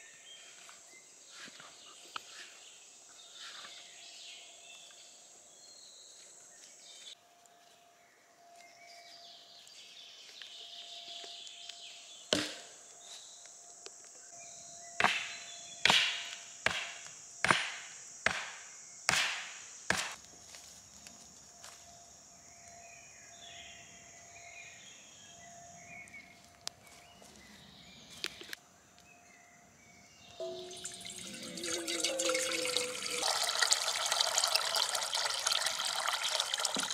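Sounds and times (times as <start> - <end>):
wooden stake knocks: 12.3 - 12.7, 15.0 - 20.2.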